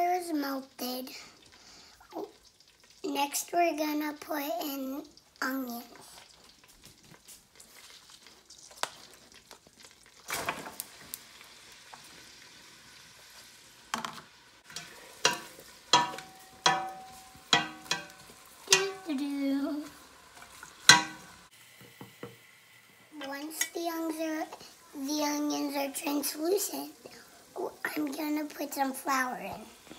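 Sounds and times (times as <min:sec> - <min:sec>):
onions sizzling in butter: 0:00.0 - 0:29.9
wooden spoon knocking pot: 0:14.7 - 0:19.1, 0:20.8 - 0:21.4.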